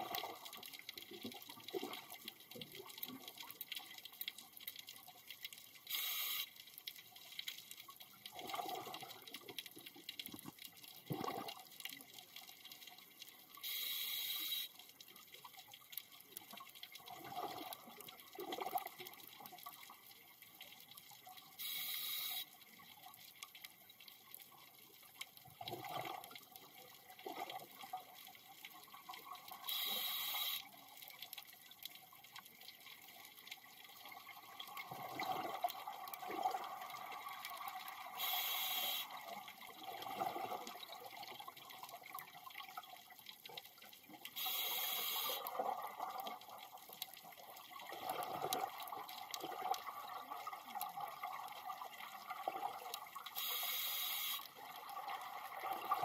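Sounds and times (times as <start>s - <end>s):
regulator breathing hisses: 5.9s - 6.5s, 13.6s - 14.7s, 21.6s - 22.5s, 29.7s - 30.7s, 38.2s - 39.1s, 44.4s - 45.4s, 53.4s - 54.4s.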